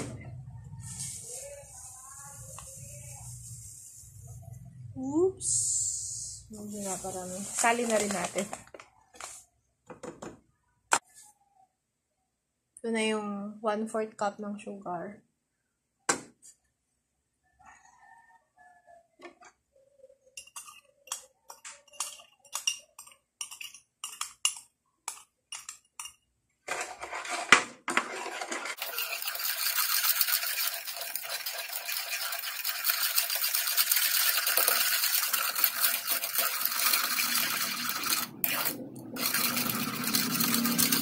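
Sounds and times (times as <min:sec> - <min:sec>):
spoon scraping a bowl: 0:20.3 - 0:41.0.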